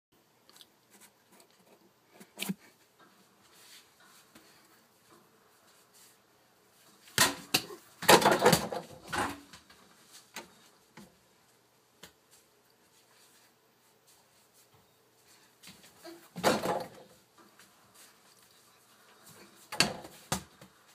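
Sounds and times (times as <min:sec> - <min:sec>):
knocks and rustling: 0:15.7 - 0:17.6.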